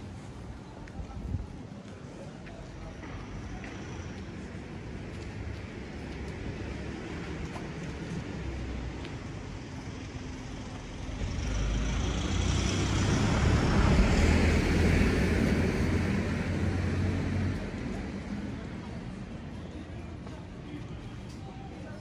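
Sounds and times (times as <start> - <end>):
vehicle driving past: 10.9 - 18.0.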